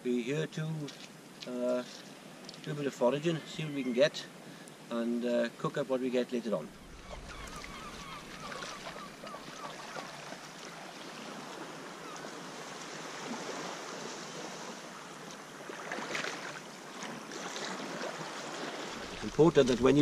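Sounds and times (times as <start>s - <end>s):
surf washing: 6.6s - 20.0s.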